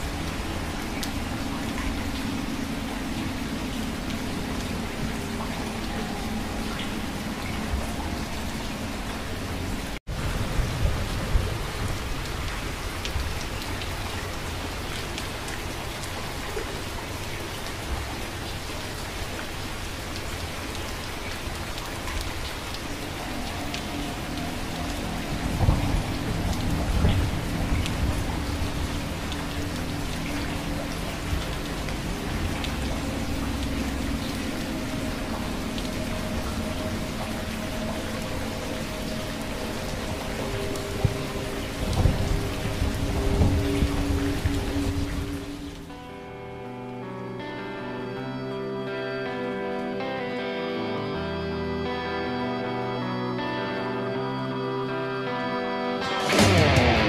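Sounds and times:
steady rain: 0:00.0 - 0:57.0
thunder rumbling: 0:23.3 - 0:34.2, 0:39.0 - 0:45.6.

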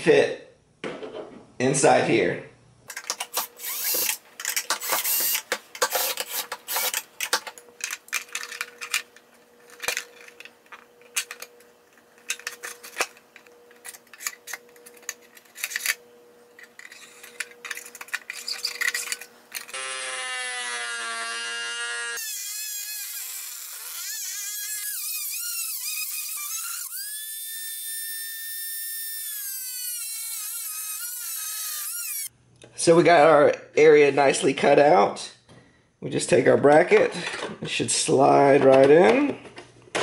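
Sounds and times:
rotary tool whining: 0:02.9 - 0:32.3.

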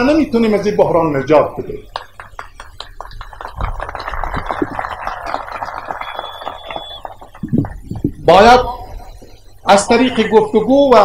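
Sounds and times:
crowd applauding: 0:01.9 - 0:08.0.

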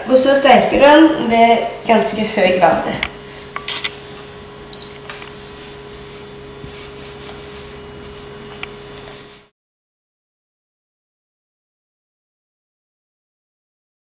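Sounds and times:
steady low hum: 0:00.0 - 0:09.5.

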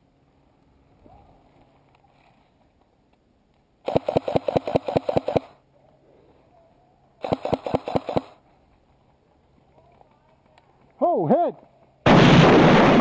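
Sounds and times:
airsoft rifle shots: 0:03.8 - 0:05.6, 0:07.2 - 0:08.4.

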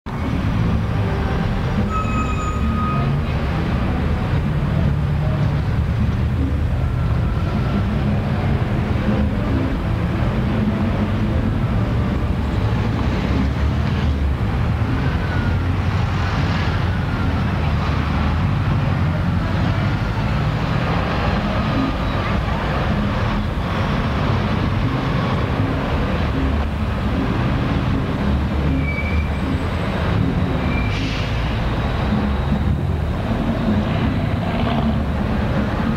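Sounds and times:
train rumbling: 0:00.1 - 0:35.9
brief high squeal: 0:01.8 - 0:03.2, 0:28.8 - 0:29.4, 0:30.6 - 0:31.4.

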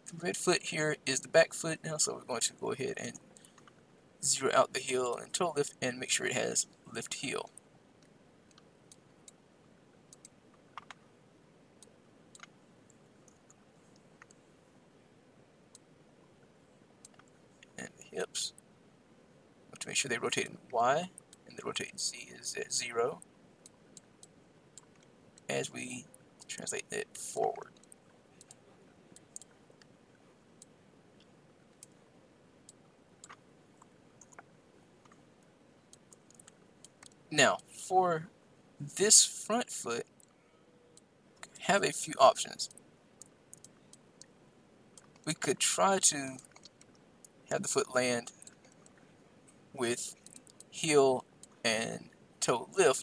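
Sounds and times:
mouse and keyboard clicks: 0:10.1 - 0:11.0, 0:11.8 - 0:12.6, 0:32.7 - 0:33.4, 0:46.4 - 0:47.0.

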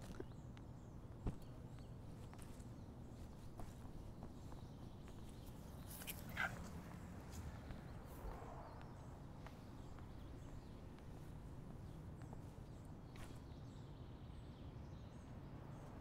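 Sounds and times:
footsteps on concrete: 0:01.3 - 0:07.9, 0:08.8 - 0:13.5.

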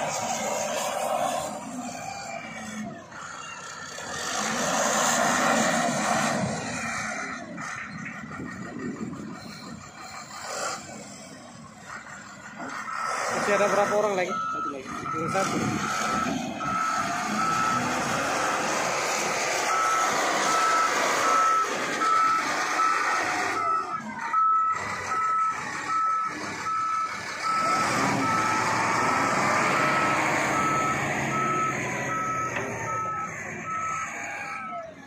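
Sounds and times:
diesel engine running: 0:00.0 - 0:35.0
reversing alarm beeping: 0:12.0 - 0:34.9.

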